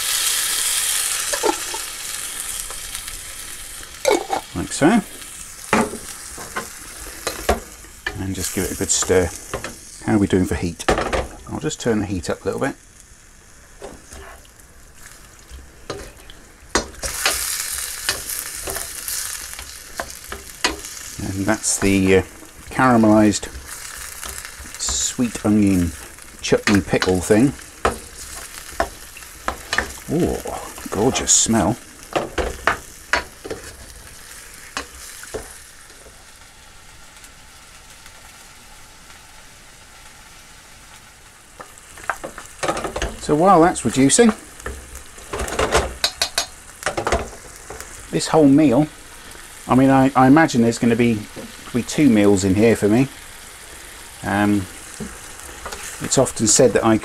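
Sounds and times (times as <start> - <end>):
meat sizzling in a frying pan: 0.0 - 57.0
spatula scraping a pan: 13.8 - 14.5, 15.8 - 35.6, 54.8 - 56.2.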